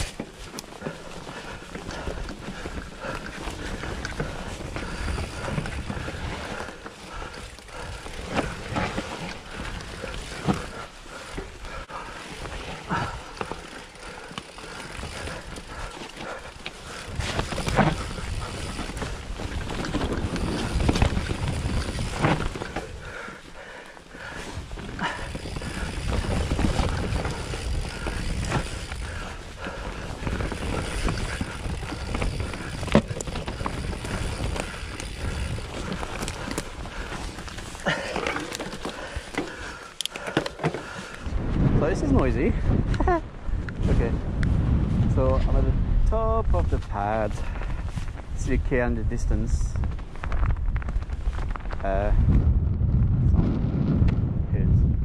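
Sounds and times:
bike knocks and rattles: 0.0 - 23.5, 24.2 - 41.3
tyre and wind rush: 0.0 - 55.0.

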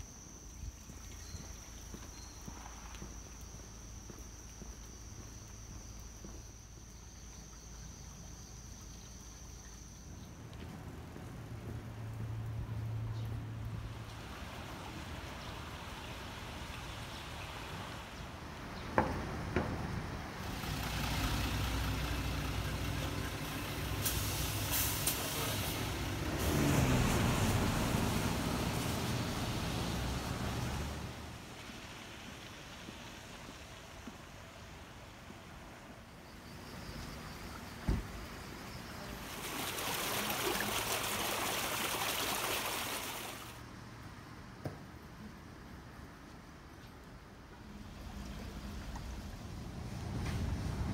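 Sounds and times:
stream trickling over rocks: 0.0 - 18.7, 20.4 - 43.6
bus engine idling: 20.4 - 26.4.

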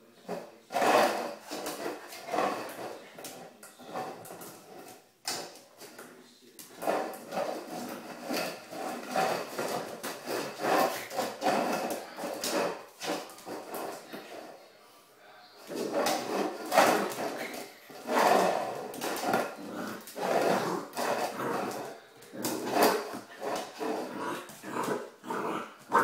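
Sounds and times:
dog bowl scraping on tiled floor: 0.1 - 14.7, 15.6 - 26.0.

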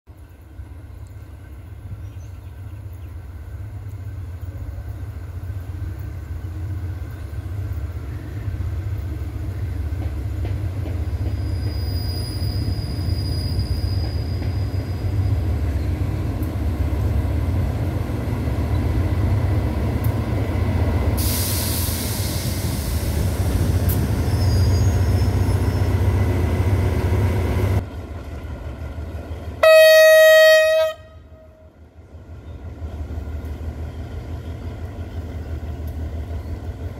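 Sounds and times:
locomotive engine rumble: 0.1 - 36.9
hiss: 21.0 - 25.0
locomotive horn blast: 29.6 - 31.8.

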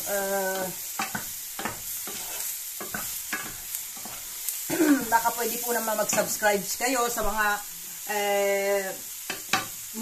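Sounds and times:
mushrooms sizzling in pan: 0.0 - 10.0
wooden spoon scraping pan: 0.5 - 4.4.

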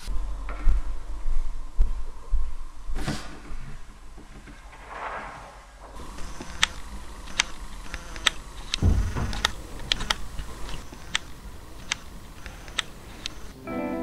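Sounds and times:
sharp clicks: 6.0 - 13.5
low thud: 8.8 - 9.6.

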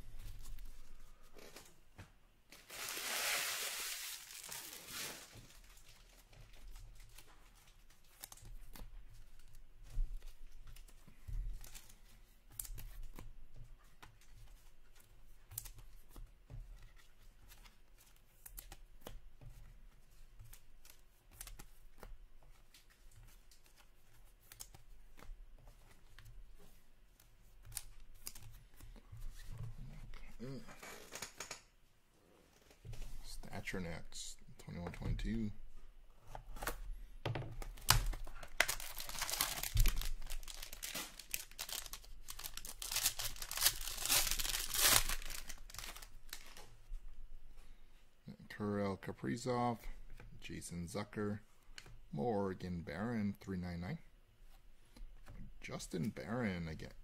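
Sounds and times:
wrapper tearing open: 2.6 - 6.1, 37.8 - 46.6.

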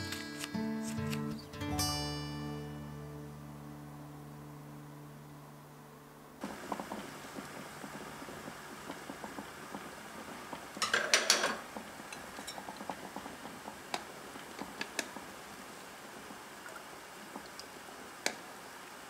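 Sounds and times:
beans simmering with bubbles: 6.4 - 19.0.

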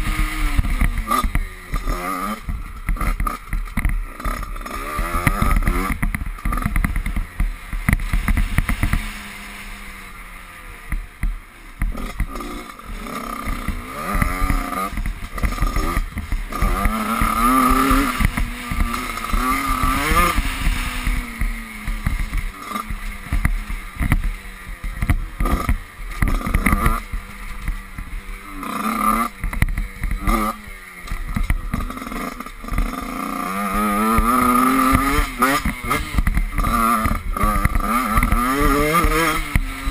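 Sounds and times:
dirt bike engine revving: 0.0 - 39.9
knocks from bumps: 10.9 - 39.9.

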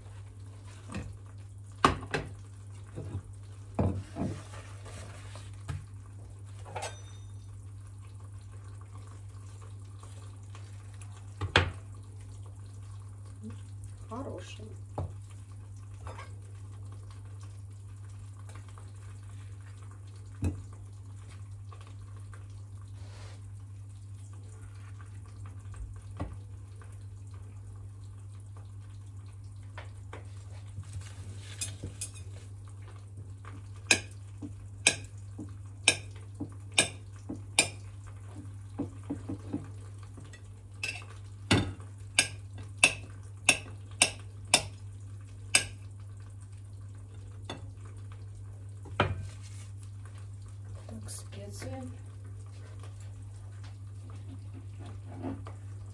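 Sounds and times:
eggs frying in a pan: 0.0 - 55.9.

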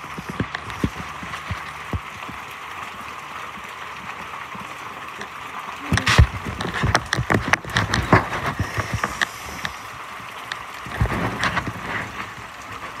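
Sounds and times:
hail on hard surfaces: 0.0 - 13.0
rain hissing: 0.0 - 13.0.

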